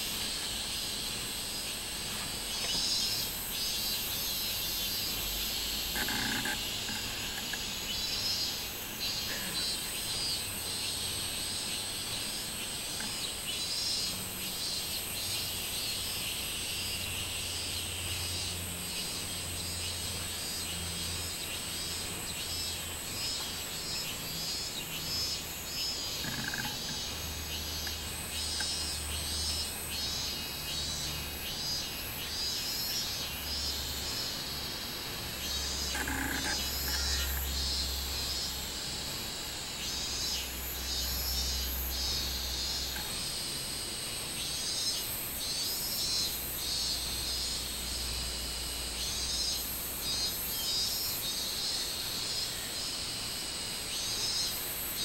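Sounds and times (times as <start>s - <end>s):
cicadas singing in chorus: 0.0s - 55.0s
steady high whine: 0.0s - 55.0s.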